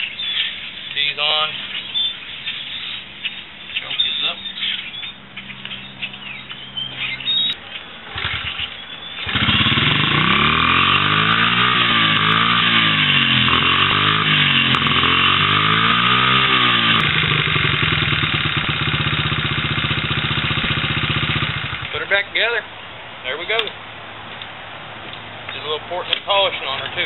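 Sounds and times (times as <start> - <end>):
motorcycle engine idling: 0.0 - 22.2
motorcycle engine revving: 3.8 - 22.2
engine starting: 8.1 - 10.4.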